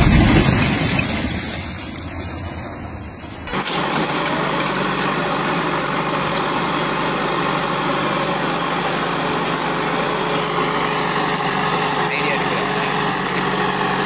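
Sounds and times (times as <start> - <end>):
diesel backhoe engine running: 0.0 - 14.0.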